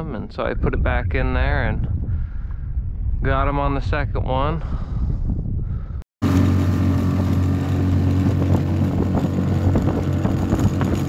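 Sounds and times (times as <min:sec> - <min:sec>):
wind on microphone: 0:00.0 - 0:11.0
small boat motor running: 0:06.2 - 0:11.0.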